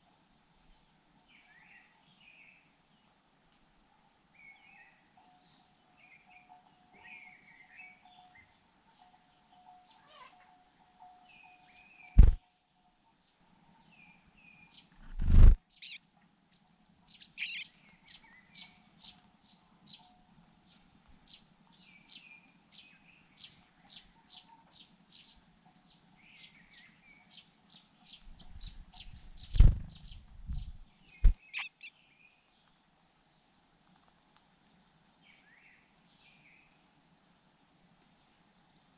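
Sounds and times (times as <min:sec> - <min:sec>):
loud thumps: 0:12.2 - 0:12.4, 0:29.5 - 0:31.4
chick chirping and calling: 0:17.2 - 0:18.2, 0:28.4 - 0:31.9.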